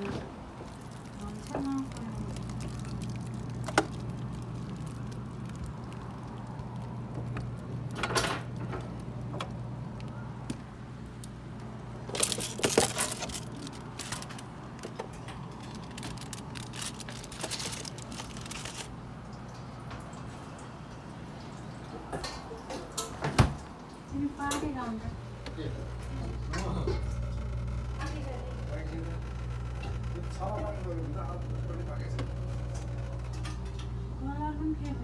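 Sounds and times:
refrigerator hum: 0:00.0 - 0:35.0
containers clicking and rattling: 0:00.6 - 0:09.6, 0:12.0 - 0:19.0.

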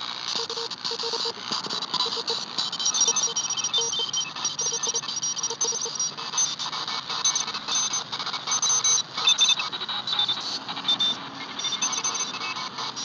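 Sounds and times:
radio hiss: 0:00.0 - 0:13.0
morse code beeps: 0:00.3 - 0:13.0.

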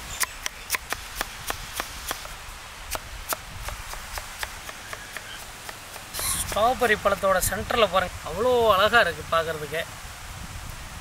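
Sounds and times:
knife chopping on wooden board: 0:02.9 - 0:06.6.

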